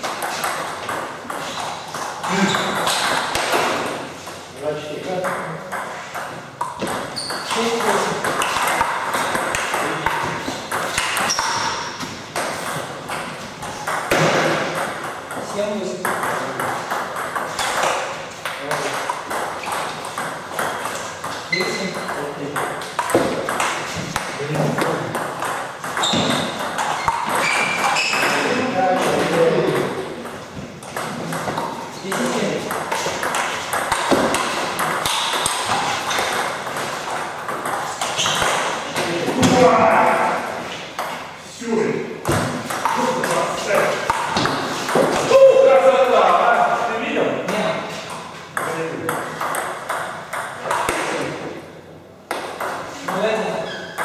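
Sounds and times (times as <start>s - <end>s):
ball bouncing on table: 5.2s - 40.3s, 42.2s - 45.4s, 47.5s - 51.6s, 52.3s - 54.0s
brief high squeaks: 26.0s - 28.3s
table tennis ball clicking off bats: 30.2s - 38.7s.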